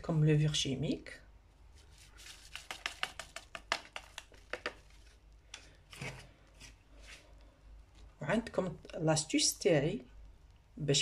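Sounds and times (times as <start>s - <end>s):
paper sachet crinkling: 1.8s - 6.8s.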